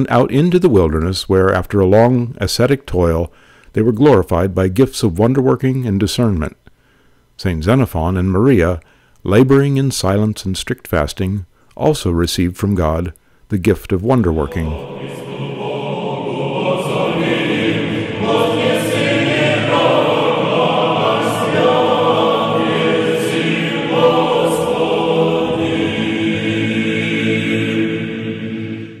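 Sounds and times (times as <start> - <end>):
choir singing: 14.3 - 29.0.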